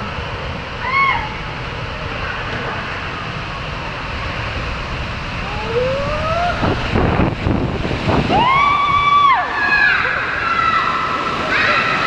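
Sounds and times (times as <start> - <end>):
rushing water in a pool: 0.0 - 12.0
water splashes: 0.0 - 12.0
long high whoop: 0.7 - 1.6, 5.4 - 7.0, 8.2 - 12.0.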